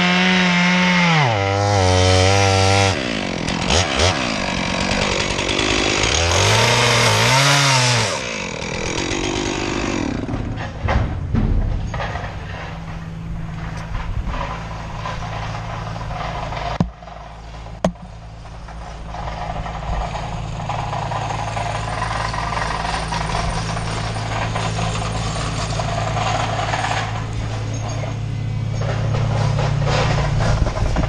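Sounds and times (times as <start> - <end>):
engine running steadily: 8.2 - 31.0.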